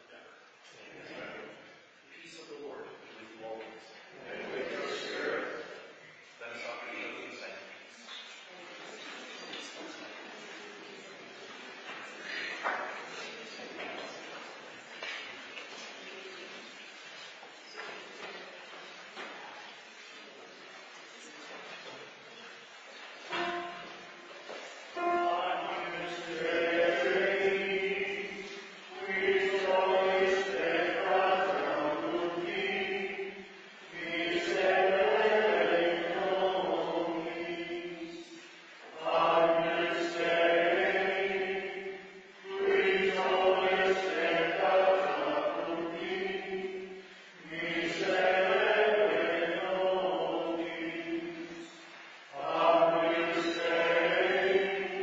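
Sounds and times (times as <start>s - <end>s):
choir singing a chant: 4.2s - 5.9s, 23.3s - 24.2s, 24.9s - 55.0s.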